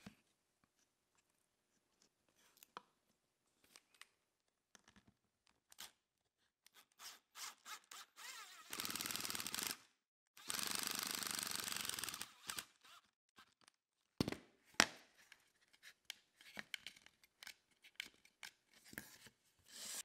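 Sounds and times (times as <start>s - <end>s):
power drill driving screw: 7.0s - 9.8s, 10.4s - 13.1s.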